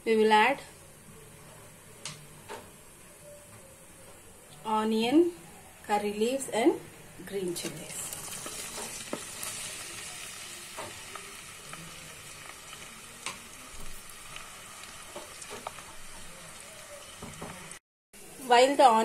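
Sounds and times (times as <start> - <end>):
food sizzling in hot oil: 7.3 - 17.8.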